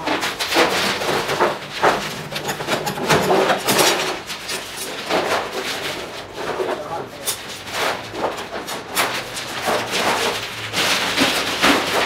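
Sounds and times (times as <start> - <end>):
metal sheet clanking: 0.4 - 4.5.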